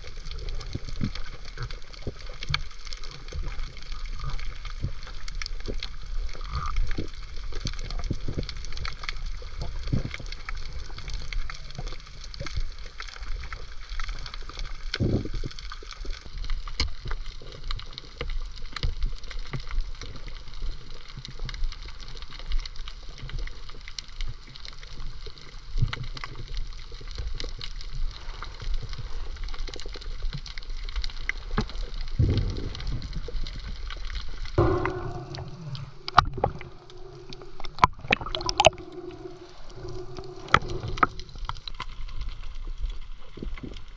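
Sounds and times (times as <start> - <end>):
water gurgling and sloshing: 27.7 - 43.9
steady low hum: 34.6 - 41.4.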